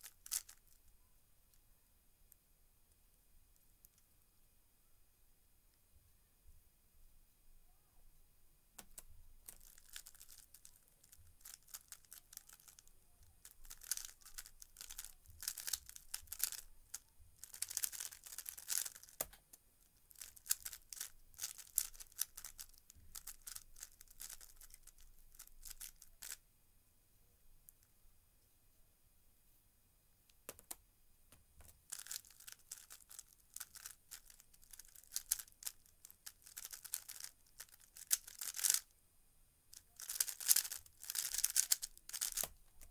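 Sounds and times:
puzzle cube clacking and rattling: 0.0s - 0.8s, 8.8s - 19.4s, 20.1s - 26.4s, 31.6s - 38.9s, 39.8s - 42.9s.

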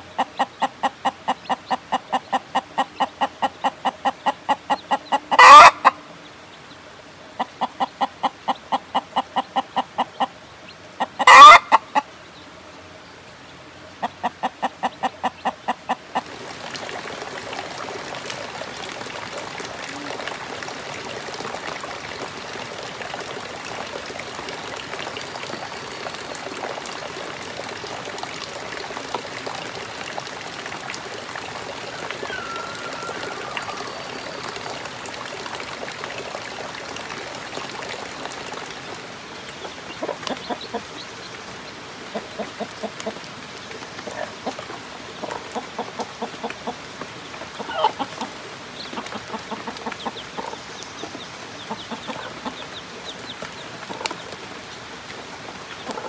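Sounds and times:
hen and chicks clucking: 0.0s - 6.0s, 7.4s - 12.4s, 14.0s - 16.4s, 39.5s - 41.1s, 42.1s - 43.2s, 44.0s - 54.4s, 55.7s - 56.0s
running water: 0.0s - 56.0s
loud hen calls: 5.1s - 6.0s, 11.2s - 12.0s, 31.9s - 34.6s.

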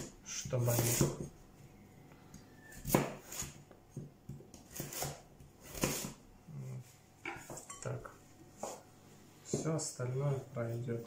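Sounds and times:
knife chopping on wooden board: 0.0s - 1.4s, 2.7s - 6.2s.

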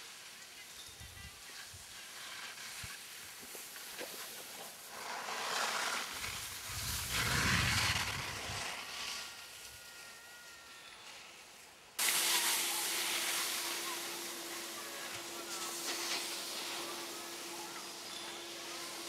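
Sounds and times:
rushing outdoor hiss: 0.0s - 9.4s, 11.9s - 19.0s
wind rumble on microphone: 6.4s - 8.7s.

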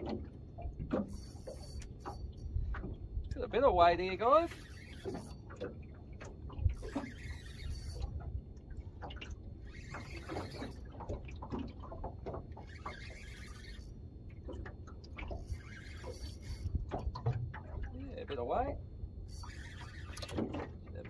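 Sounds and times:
reel and rod clicks: 0.0s - 18.4s, 19.2s - 21.0s
low steady rumble: 0.0s - 20.1s
fishing reel winding: 1.0s - 2.5s, 4.0s - 5.5s, 6.7s - 8.2s, 9.6s - 11.0s, 12.6s - 14.0s, 15.3s - 16.8s, 19.3s - 20.4s.

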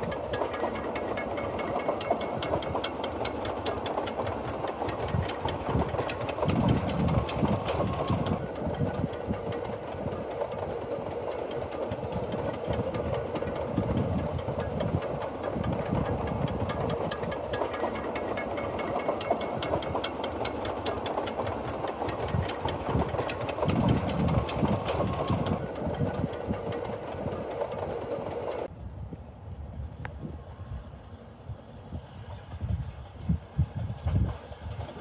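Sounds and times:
steam locomotive chuffing: 0.0s - 28.7s, 29.8s - 35.0s.

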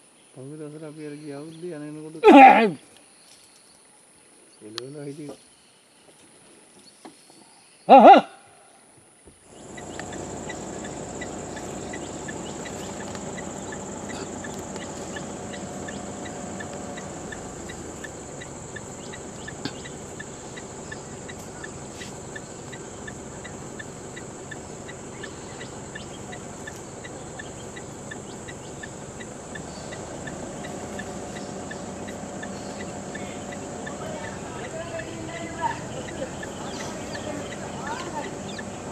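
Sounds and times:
insect drone high-pitched whine: 9.4s - 38.9s
low background hum: 9.4s - 38.9s
ticking chirp: 9.4s - 38.9s.

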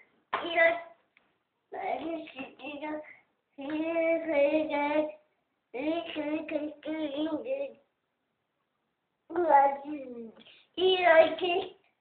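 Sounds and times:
young child singing: 0.4s - 1.0s, 1.8s - 7.8s, 9.3s - 11.9s.

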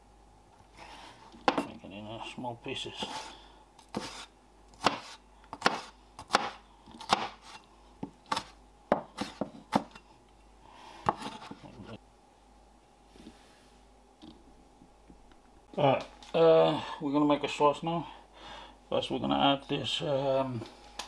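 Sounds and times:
cleaver chopping on wooden board: 4.8s - 7.6s.

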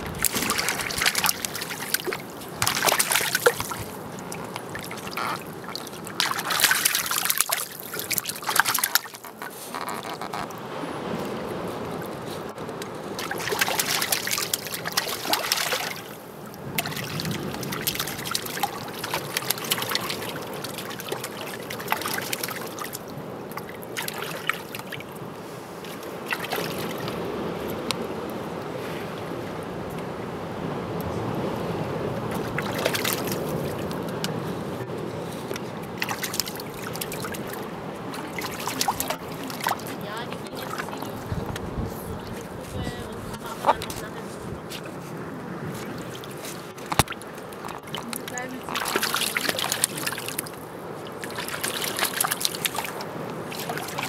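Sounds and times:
penguins splashing in water: 0.0s - 10.4s, 13.2s - 25.1s, 25.9s - 27.2s, 32.3s - 34.2s, 36.0s - 41.6s, 45.8s - 54.0s
water trickling and lapping: 0.0s - 54.0s.

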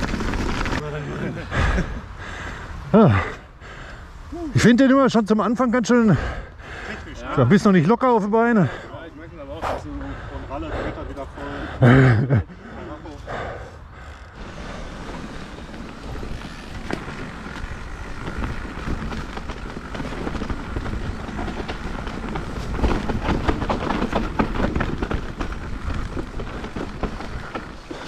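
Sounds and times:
bike rattles and knocks: 0.0s - 1.8s, 14.0s - 28.0s
bike tyre noise on dirt: 0.0s - 7.8s, 12.7s - 28.0s.

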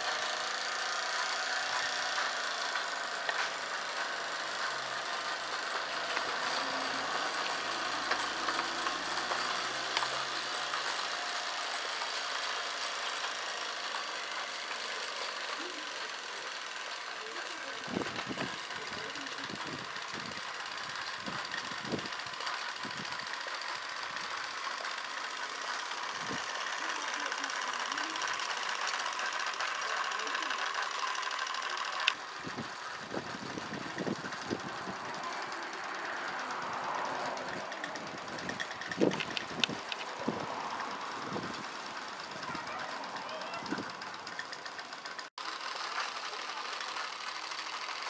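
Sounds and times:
steam engine hissing and ticking: 0.0s - 48.0s
fast exhaust beats: 17.6s - 48.0s.

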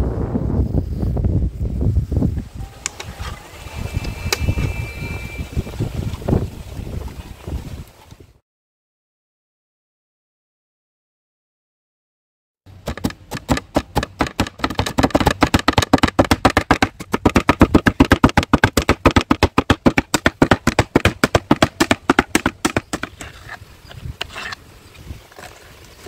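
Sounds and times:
rapid sharp knocks: 12.8s - 23.1s.

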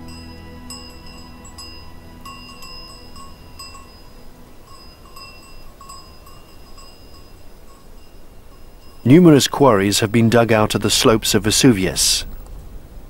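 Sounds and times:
livestock bells clinking: 0.0s - 10.1s.

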